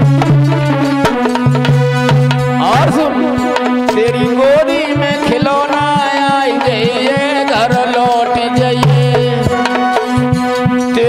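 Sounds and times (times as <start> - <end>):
wavering melodic line: 0.0 - 7.6
hand drum strokes: 0.0 - 11.0
held drone notes: 0.0 - 11.0.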